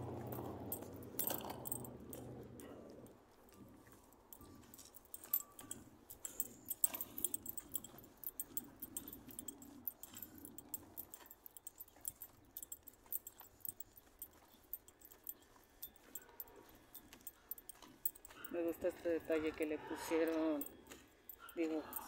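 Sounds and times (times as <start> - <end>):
keys jangling: 0.0 - 22.0.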